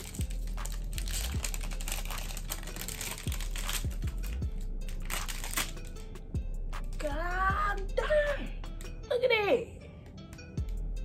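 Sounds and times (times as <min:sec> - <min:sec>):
candy wrapper crinkling: 0:00.0 - 0:06.0
background music: 0:00.0 - 0:11.0.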